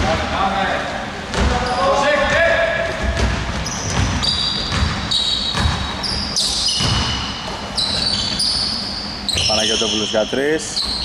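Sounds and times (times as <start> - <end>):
sneakers squeaking on floor: 1.3 - 11.0
basketball dribbling on hardwood: 3.0 - 5.9, 6.8 - 7.1.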